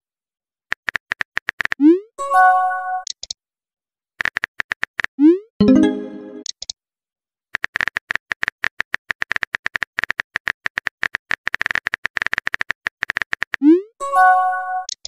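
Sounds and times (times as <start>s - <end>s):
chat app tone: 5.6s - 6.4s.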